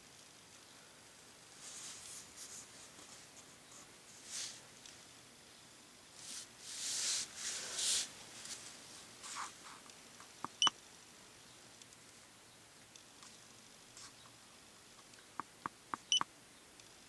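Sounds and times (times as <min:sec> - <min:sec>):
handling rustle: 0:01.5 - 0:05.0, 0:06.2 - 0:10.4
keypad press: 0:15.4 - 0:16.3
short electronic beeps: 0:16.0 - 0:16.2.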